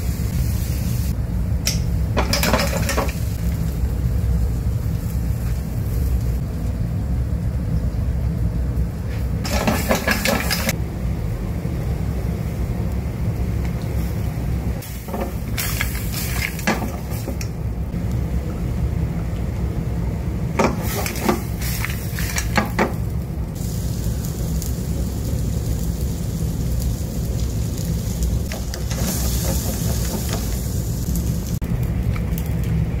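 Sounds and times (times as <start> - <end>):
sizzling hiss: 0.0 - 7.0, 7.7 - 18.8, 20.5 - 33.0
sauce boiling in a pan: 2.2 - 33.0
sharp clicks and crackles: 28.2 - 33.0.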